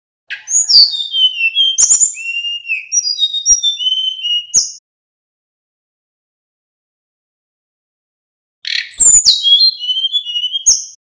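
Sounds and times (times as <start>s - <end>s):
bird singing high whistled notes: 0.3s - 4.8s, 8.6s - 11.0s.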